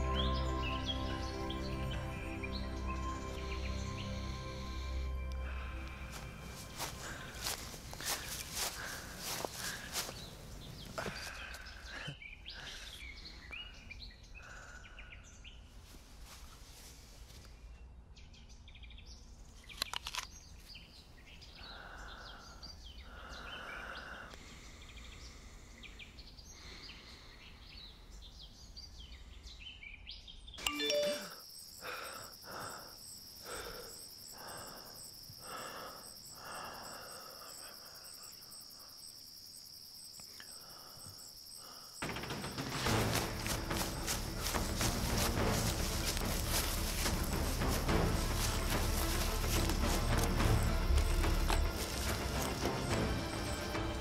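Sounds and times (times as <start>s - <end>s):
small birds chirping: 0.0s - 54.0s
high-pitched tone with soft pulses: 30.6s - 31.4s.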